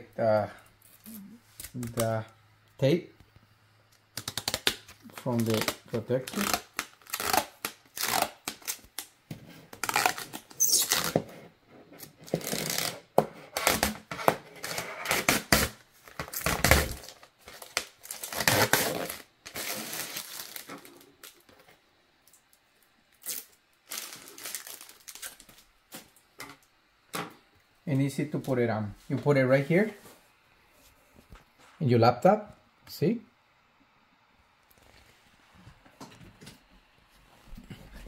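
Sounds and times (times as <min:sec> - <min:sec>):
plastic film crinkling and rustling: 0:04.1 - 0:11.2, 0:12.1 - 0:21.6, 0:23.1 - 0:26.2.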